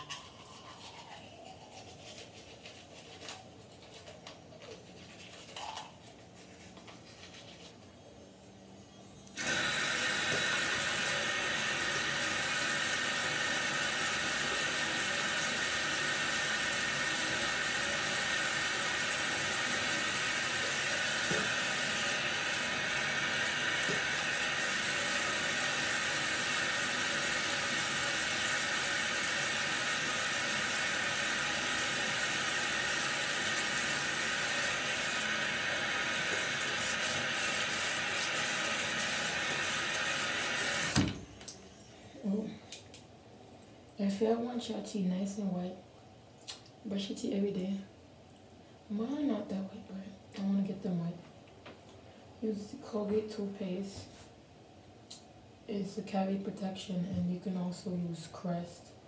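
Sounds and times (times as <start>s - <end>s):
toothbrush scrubbing: 0.0s - 7.8s
tap water running into sink: 9.4s - 41.1s.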